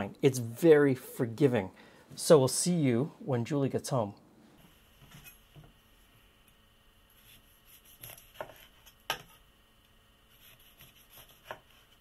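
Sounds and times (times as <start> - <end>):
knife slicing lemon on wooden board: 7.2 - 9.4, 10.3 - 12.0.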